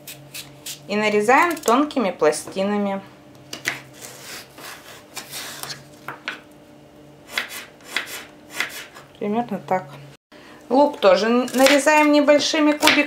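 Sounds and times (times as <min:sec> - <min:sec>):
knife slicing carrot on board: 0:07.3 - 0:09.0.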